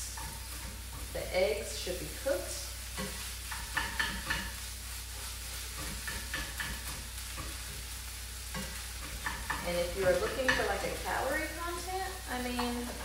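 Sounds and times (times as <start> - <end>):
food sizzling in a pan: 0.0 - 13.0
spatula scraping a pan: 0.0 - 13.0.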